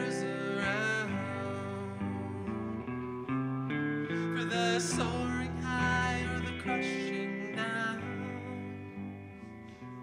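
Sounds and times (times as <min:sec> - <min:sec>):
two people singing: 0:00.0 - 0:03.3, 0:04.1 - 0:09.2
electric guitar chords: 0:00.0 - 0:10.0.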